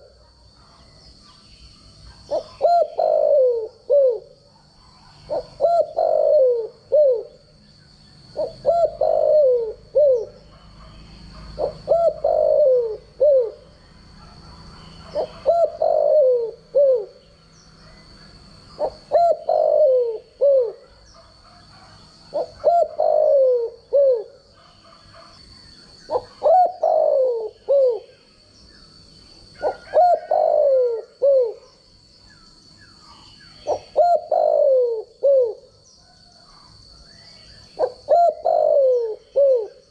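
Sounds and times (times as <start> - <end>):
dove cooing: 2.0 - 7.6, 8.3 - 17.3, 18.8 - 25.4, 26.0 - 28.2, 29.4 - 31.8, 33.5 - 36.8, 37.6 - 39.9.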